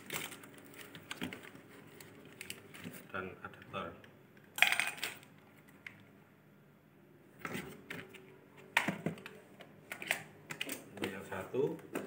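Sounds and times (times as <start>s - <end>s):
cardboard packaging rustling: 0.0s - 3.1s.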